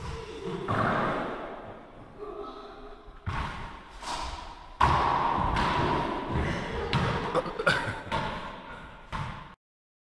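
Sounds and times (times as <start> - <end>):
ball knocking off walls: 3.2 - 7.3
racquets hitting rubber ball: 4.8 - 7.3, 8.1 - 9.6.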